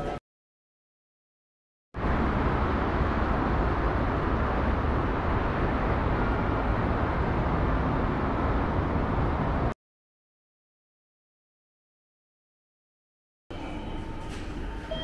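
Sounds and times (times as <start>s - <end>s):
bus engine and road noise: 2.0s - 9.8s.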